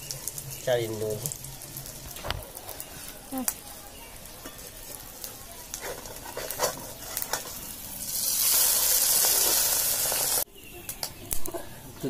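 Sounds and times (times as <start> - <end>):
patty sizzling in hot oil: 0.0 - 10.5
metal spatula scraping: 5.7 - 7.9.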